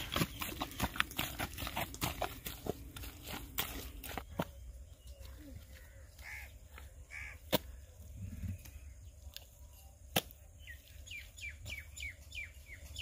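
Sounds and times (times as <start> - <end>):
birds calling: 0.0 - 13.0.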